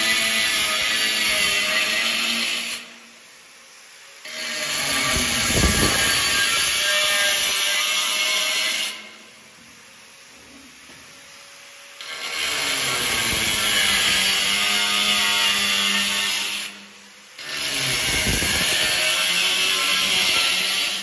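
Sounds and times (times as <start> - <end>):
angle grinder cutting tile: 4.3 - 9.1, 12.0 - 16.8, 17.4 - 21.0.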